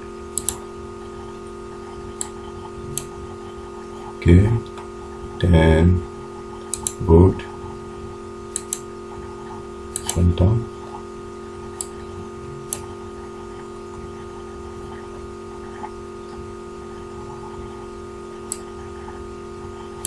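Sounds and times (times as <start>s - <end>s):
background hum: 0.0s - 20.0s
computer mouse clicks: 0.4s - 0.6s, 2.2s - 3.1s, 6.6s - 7.0s, 8.5s - 8.9s, 9.9s - 10.2s, 11.8s - 12.0s, 12.7s - 12.9s, 18.4s - 18.7s.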